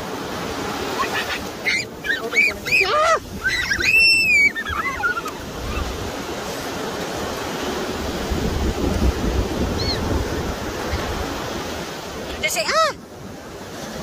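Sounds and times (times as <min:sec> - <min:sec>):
ocean surf: 0:00.0 - 0:14.0
children squealing and shrieking: 0:00.9 - 0:06.1, 0:09.7 - 0:10.1.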